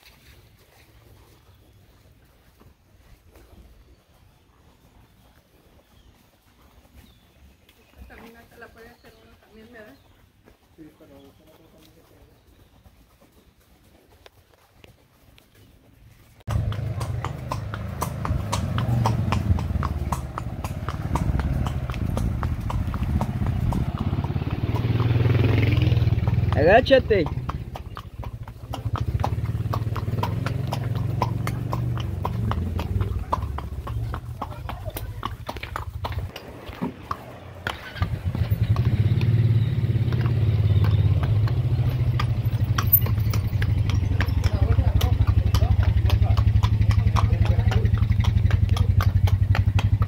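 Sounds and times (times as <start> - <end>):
horse hooves clopping on trail: 0.0 - 50.0
small engine running: 16.5 - 50.0.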